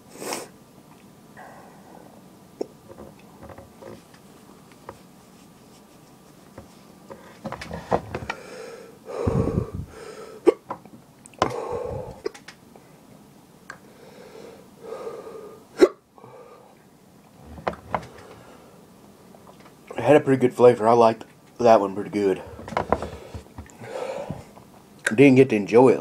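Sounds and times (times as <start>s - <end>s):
man exhaling hard: 8.3s - 10.4s, 11.4s - 12.3s, 23.1s - 24.5s
man hiccupping: 15.8s - 16.0s.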